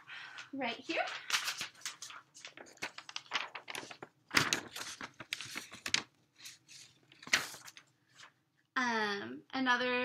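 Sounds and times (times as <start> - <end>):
paper rustling and crinkling: 0.7 - 8.4.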